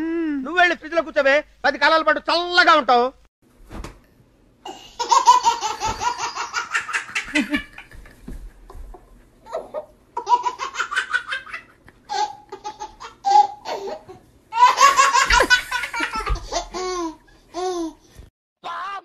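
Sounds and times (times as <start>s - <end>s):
baby laughing: 4.7s - 8.0s, 9.4s - 18.0s.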